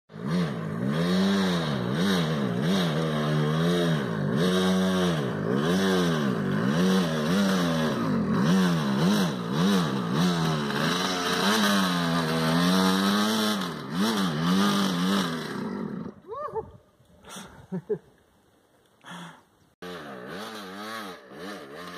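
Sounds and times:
dirt bike engine revving: 0:00.1 - 0:16.2, 0:19.8 - 0:21.9.

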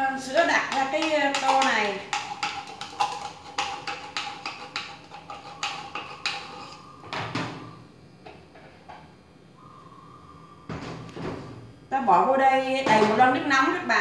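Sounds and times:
metal spoon scraping a tin: 0:00.3 - 0:07.0.

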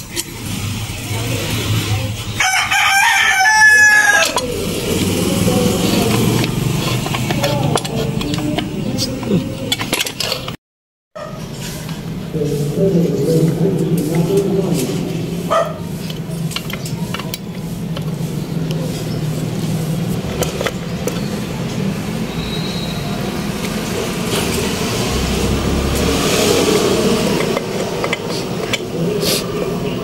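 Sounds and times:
engine parts clicking: 0:00.0 - 0:02.4, 0:03.9 - 0:10.6, 0:16.0 - 0:22.2, 0:23.4 - 0:30.0
road traffic: 0:00.0 - 0:30.0
vehicle passing: 0:00.4 - 0:09.9, 0:11.4 - 0:30.0.

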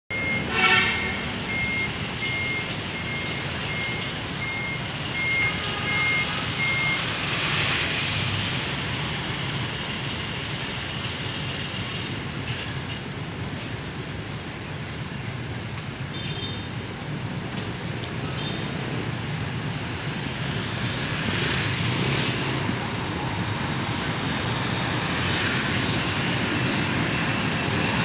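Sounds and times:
reversing alarm beeping: 0:00.1 - 0:07.4
street traffic noise: 0:00.1 - 0:28.0.

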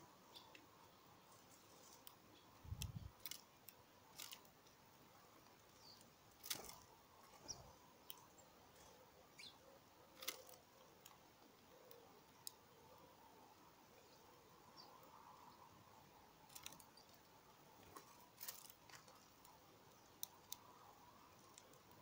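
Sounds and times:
faint high bird chirps: 0:00.2 - 0:03.1, 0:07.4 - 0:10.6.

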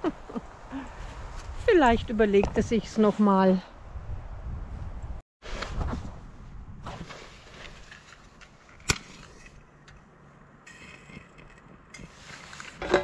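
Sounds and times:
wind rumble on microphone: 0:00.1 - 0:07.8.

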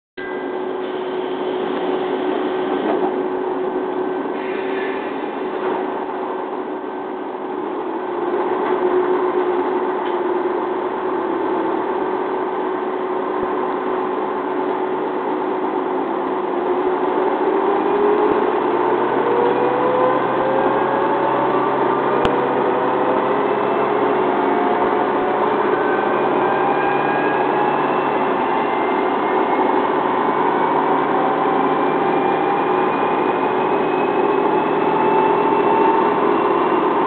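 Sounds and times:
railcar engine drone: 0:00.2 - 0:37.0
rising engine tone: 0:17.1 - 0:37.0.

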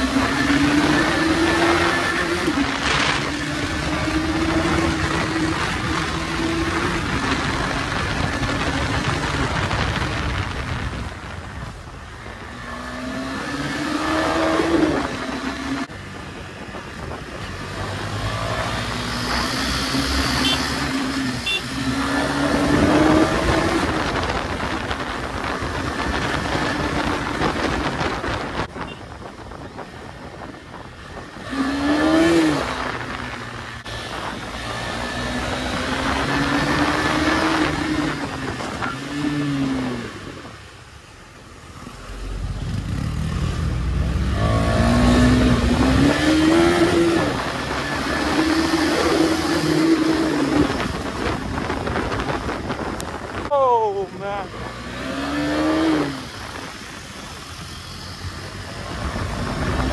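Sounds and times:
motorcycle engine revving: 0:00.0 - 0:29.0, 0:30.2 - 0:40.6, 0:41.6 - 0:59.9
wind noise: 0:00.0 - 0:40.9, 0:42.2 - 0:59.9.

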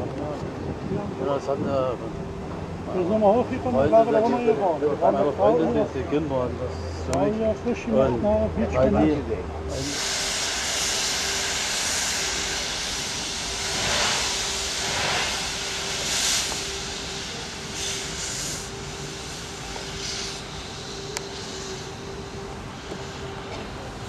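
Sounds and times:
steam locomotive exhaust surges: 0:09.6 - 0:24.0
steam hissing: 0:09.7 - 0:24.0.

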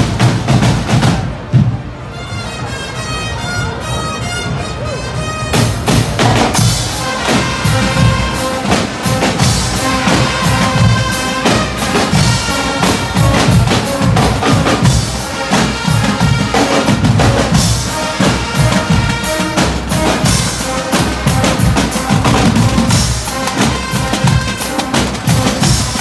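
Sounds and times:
snare and bass drums beating: 0:00.0 - 0:01.8, 0:05.6 - 0:26.0
marching band: 0:00.0 - 0:26.0
brass holding long notes: 0:02.1 - 0:26.0.

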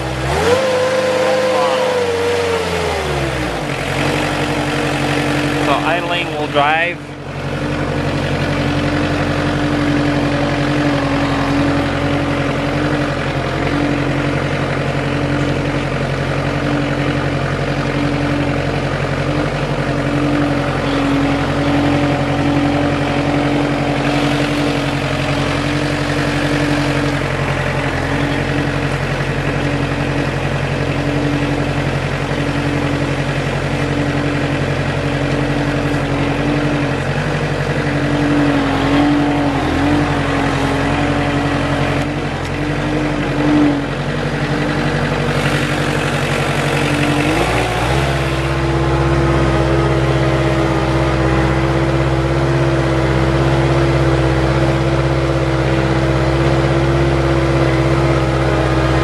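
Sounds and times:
higher hum rising and falling: 0:00.0 - 0:07.7, 0:19.9 - 0:59.0
diesel engine idling: 0:00.0 - 0:59.0.

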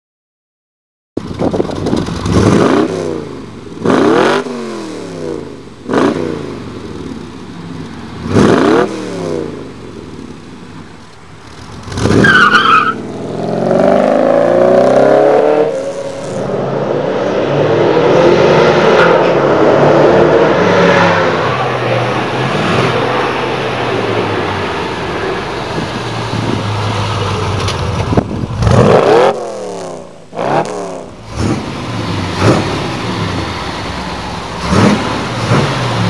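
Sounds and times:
car engine revving: 0:01.4 - 0:06.9, 0:07.8 - 0:09.8, 0:11.5 - 0:36.0
car engine accelerating: 0:11.5 - 0:36.0.

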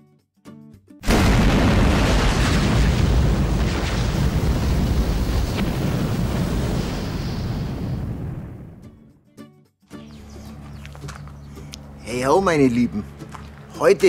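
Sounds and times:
loud fiery blast: 0:01.0 - 0:09.0.

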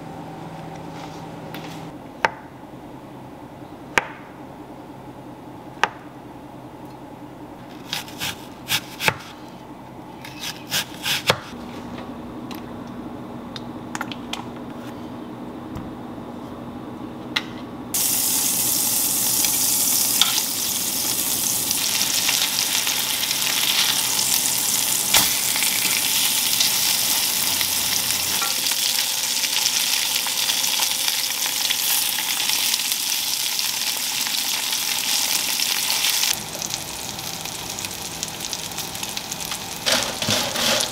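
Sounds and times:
patties sizzling in hot oil: 0:18.0 - 0:40.9.

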